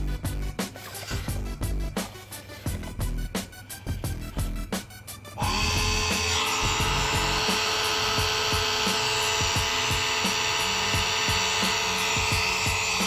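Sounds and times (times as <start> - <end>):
electric motor whining: 5.4 - 13.0.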